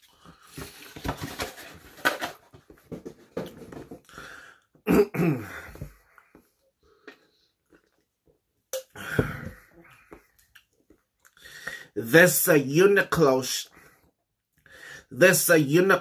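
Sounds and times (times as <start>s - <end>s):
person clearing throat: 4.8s - 5.9s
person coughing: 4.8s - 5.9s.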